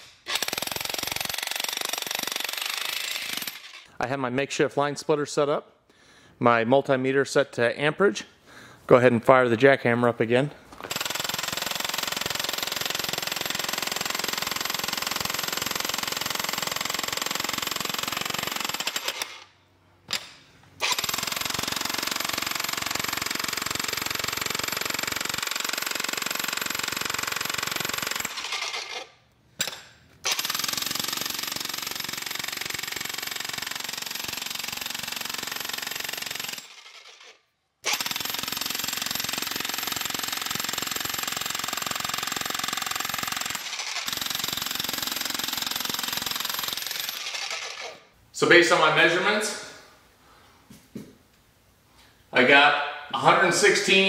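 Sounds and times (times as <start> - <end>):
electric jackhammer hammering: 0.0 - 3.9, 10.8 - 19.5, 20.8 - 48.1.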